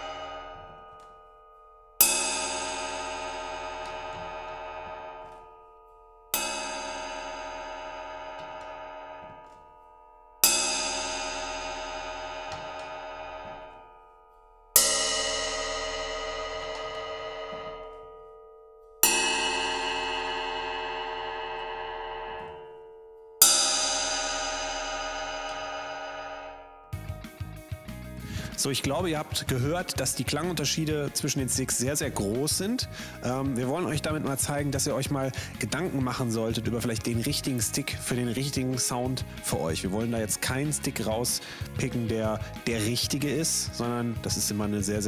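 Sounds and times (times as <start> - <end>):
cymbal struck with drumstick: 0.0 - 1.1, 2.0 - 5.4, 6.3 - 9.6, 10.4 - 13.8, 14.8 - 18.2, 19.0 - 22.6, 23.4 - 28.6.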